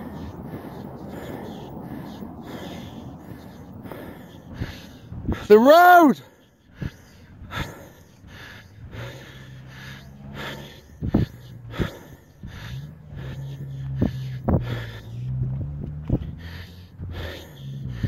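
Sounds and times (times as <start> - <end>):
low hum in breath: 0.0 - 5.6, 6.2 - 18.0
person breathing heavily: 0.0 - 18.0.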